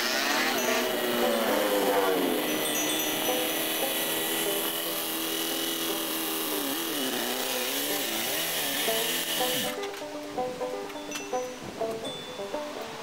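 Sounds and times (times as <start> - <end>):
go-kart engine running: 0.0 - 9.8.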